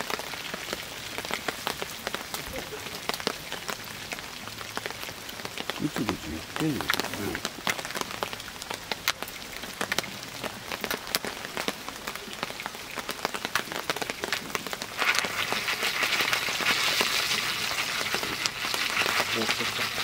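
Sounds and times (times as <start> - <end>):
butter bubbling in pan: 13.0 - 20.0.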